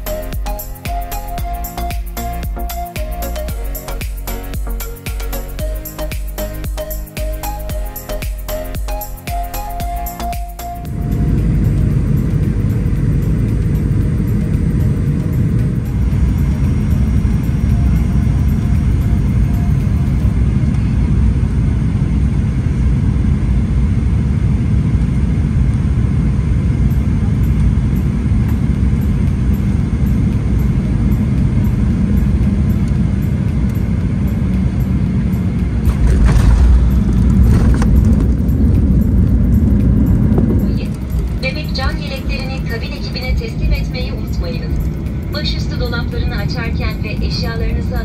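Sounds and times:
jet engine and airflow rumble: 0.0 - 48.0
wheels touching down: 35.8 - 39.0.

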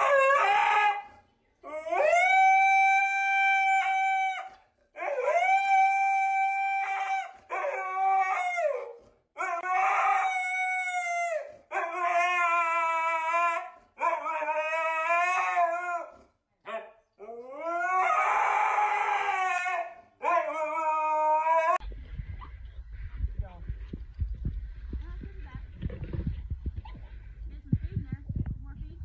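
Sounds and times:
dog howling: 0.0 - 21.8.

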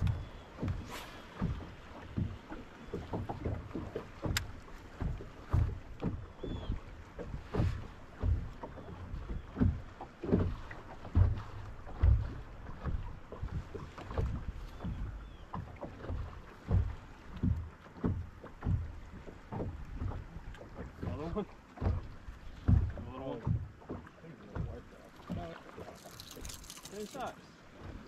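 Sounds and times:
waves slapping against boat hull: 0.0 - 28.0.

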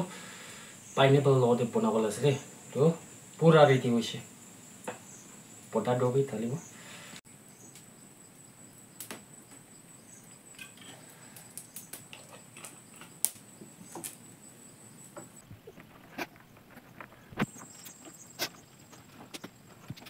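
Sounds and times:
wood fire crackling and popping: 7.7 - 7.9, 8.8 - 14.3.

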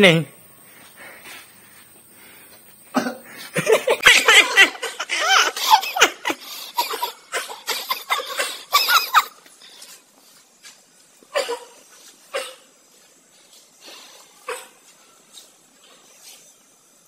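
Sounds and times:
men laughing: 3.0 - 9.4.

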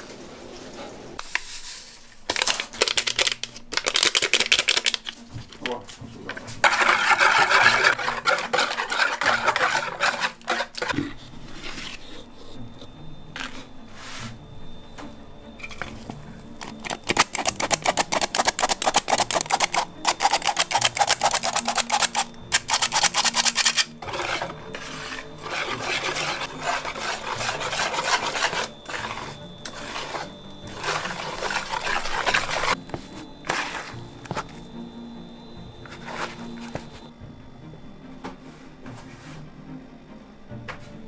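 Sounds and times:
flour sifter rasping: 0.0 - 12.4, 15.7 - 34.7, 35.8 - 37.1
soft rubbing and scraping: 5.2 - 12.7, 13.4 - 14.4, 23.6 - 34.6, 35.8 - 37.1, 38.4 - 39.6.

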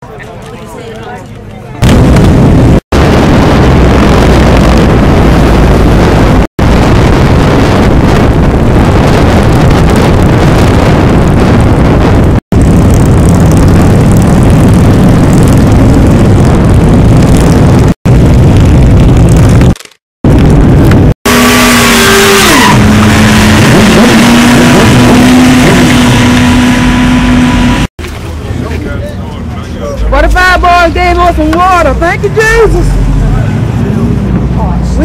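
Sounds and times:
wind noise on microphone: 1.8 - 27.9.

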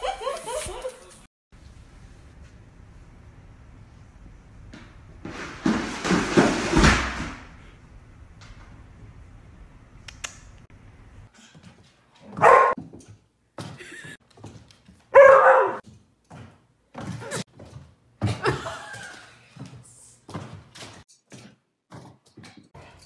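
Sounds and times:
dog barking: 12.3 - 12.8, 15.1 - 15.8.

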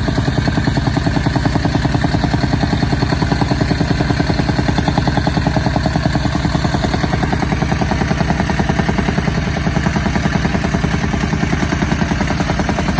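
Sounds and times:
soil compactor engine pounding: 0.0 - 12.9.

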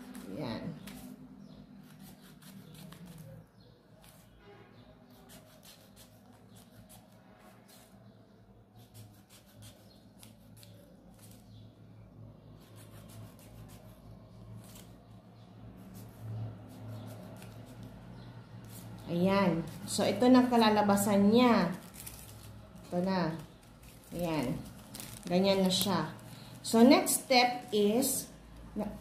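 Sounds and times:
scissors snipping paper: 0.0 - 4.4, 5.1 - 8.0, 8.8 - 11.6, 12.6 - 15.1, 15.8 - 26.2
paper rustling: 21.4 - 26.5.

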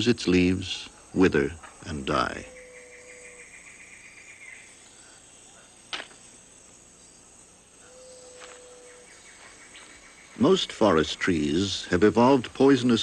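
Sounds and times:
insect trilling: 0.0 - 13.0
sharp click: 5.9 - 6.2.

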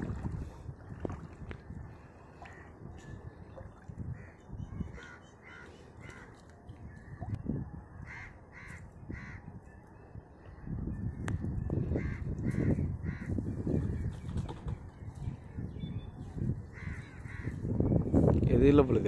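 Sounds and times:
water sloshing and splashing: 0.0 - 7.7
crows cawing: 4.2 - 6.4, 8.0 - 9.5, 12.0 - 13.3, 16.7 - 17.6.

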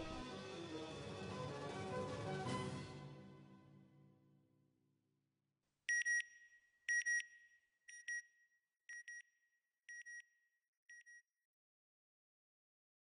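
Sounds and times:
music track: 0.0 - 4.0.

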